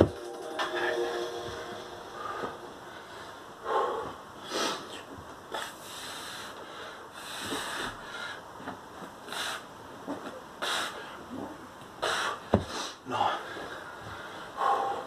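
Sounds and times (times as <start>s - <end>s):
man breathing hard: 2.1s - 8.5s, 12.0s - 15.0s.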